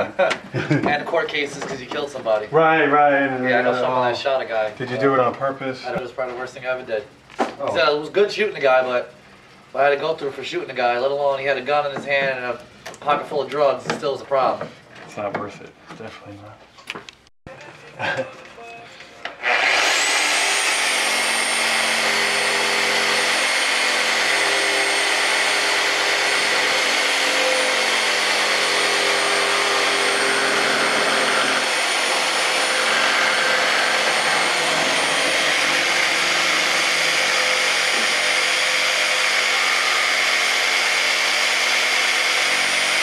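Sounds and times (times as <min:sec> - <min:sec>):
power tool motor whine: 0:19.3 - 0:43.0.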